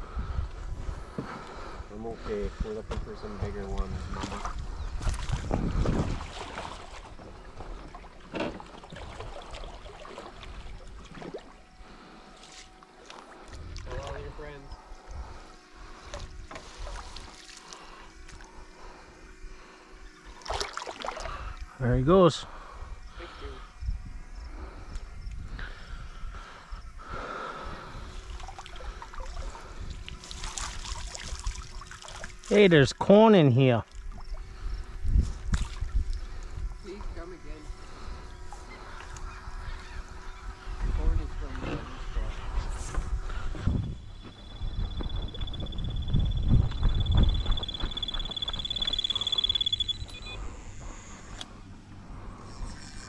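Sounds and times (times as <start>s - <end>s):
water splashing and trickling: 5.1s - 11.7s, 20.4s - 21.4s, 28.3s - 32.6s
water splashing and dripping: 20.4s - 21.3s, 30.3s - 32.4s.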